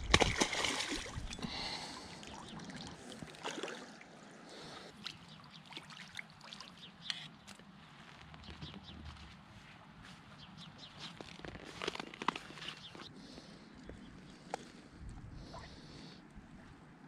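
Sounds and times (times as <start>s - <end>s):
fish thrashing water splashing: 0.0s - 1.4s.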